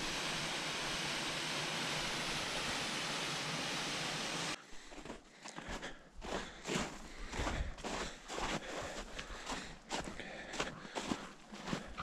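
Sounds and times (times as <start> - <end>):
waterfall rushing: 0.0 - 4.6.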